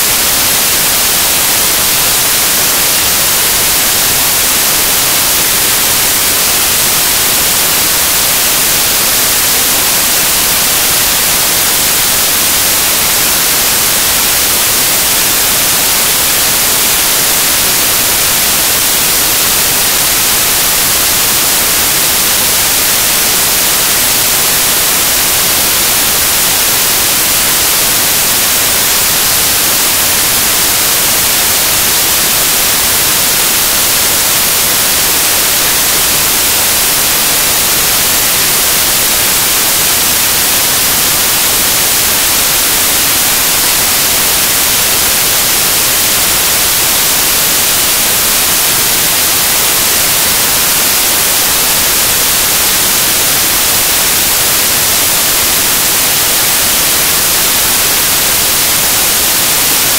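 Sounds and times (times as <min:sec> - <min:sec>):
static hiss: 0:00.0 - 0:59.9.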